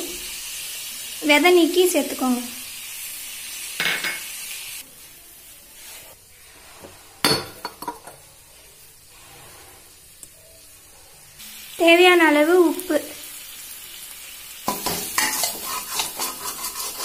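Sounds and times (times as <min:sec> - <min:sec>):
food sizzling in a pan: 0:00.0 - 0:17.0
ladle stirring: 0:14.8 - 0:17.0.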